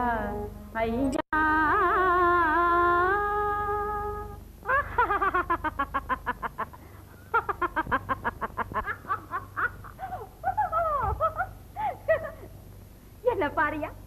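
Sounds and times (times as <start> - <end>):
woman laughing loudly: 4.7 - 12.5.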